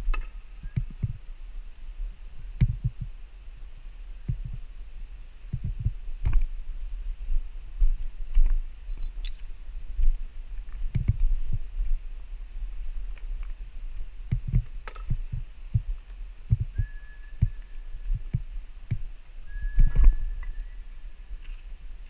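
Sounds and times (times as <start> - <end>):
steady low rumble: 0.0 - 22.0
dull footstep thumps: 10.8 - 11.6, 14.3 - 15.9.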